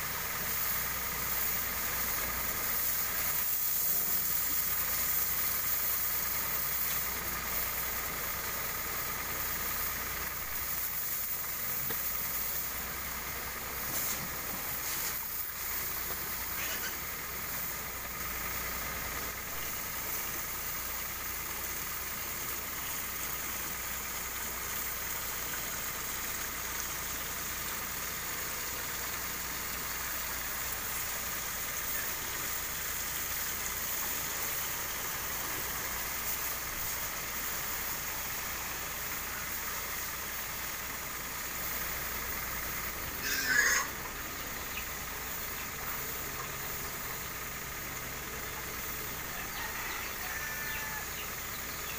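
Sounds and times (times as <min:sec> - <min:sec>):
high spray hiss: 0:00.0 - 0:51.9
power sprayer engine running: 0:00.0 - 0:51.9
pig squealing: 0:43.2 - 0:44.1.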